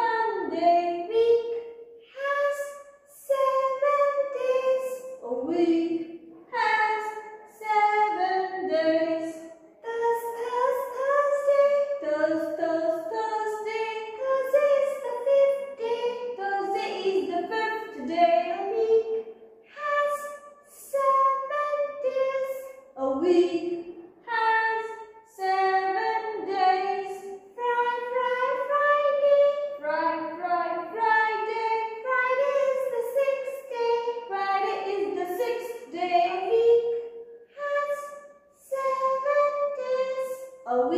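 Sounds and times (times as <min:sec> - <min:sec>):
high voice singing children's song: 0:00.0 - 0:40.9.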